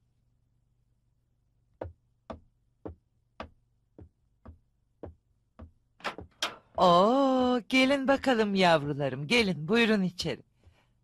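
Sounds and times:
faint footsteps: 0:01.8 - 0:08.5.

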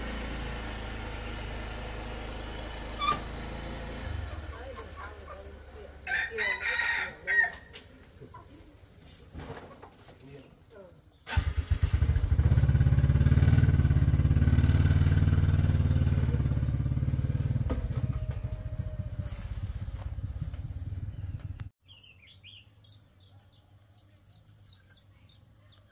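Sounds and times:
small motorcycle engine running: 0:00.0 - 0:06.3, 0:11.3 - 0:21.7
faint bird chirps: 0:21.0 - 0:25.9.

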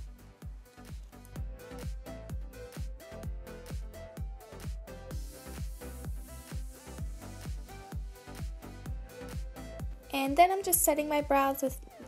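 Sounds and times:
electronic dance music: 0:00.0 - 0:11.8.

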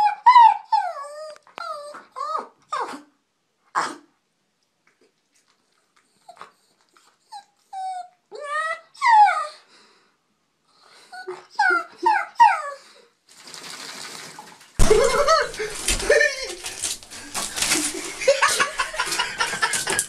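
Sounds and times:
dog whining and yowling: 0:00.0 - 0:03.1, 0:06.2 - 0:09.7, 0:11.1 - 0:13.0.

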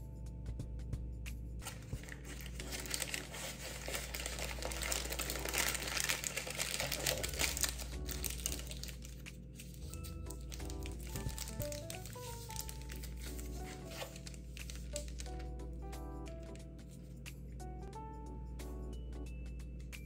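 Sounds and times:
baking paper crinkling: 0:01.6 - 0:15.5.

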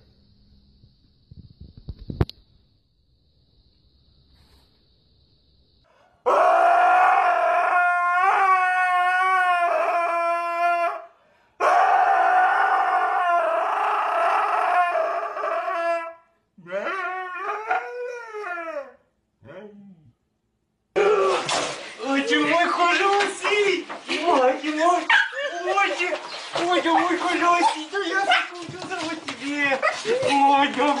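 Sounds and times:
husky howling: 0:06.2 - 0:20.0.

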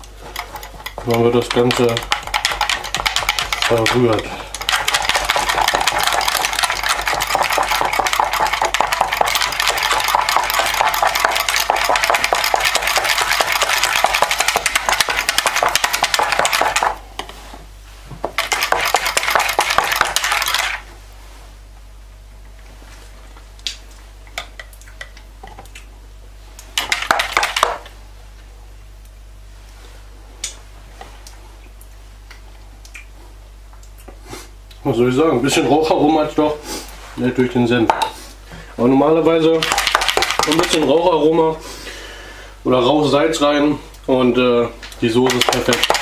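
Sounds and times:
whisk rattling in plastic jug: 0:00.2 - 0:17.0, 0:18.2 - 0:20.8, 0:26.8 - 0:27.8, 0:39.3 - 0:41.2, 0:45.0 - 0:46.0.

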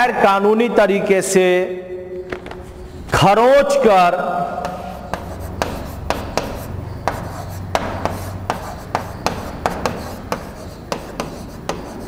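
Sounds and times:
marker pen writing on a board: 0:04.4 - 0:12.0.

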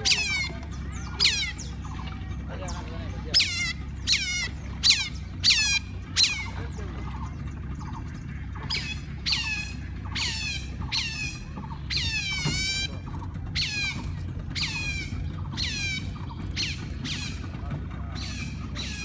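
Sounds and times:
otters squealing: 0:00.0 - 0:19.0.

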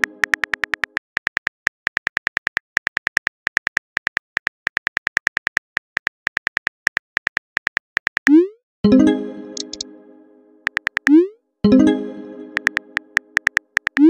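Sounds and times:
phone keyboard typing clicks: 0:00.0 - 0:08.3, 0:09.6 - 0:09.8, 0:10.6 - 0:11.2, 0:12.6 - 0:14.0.

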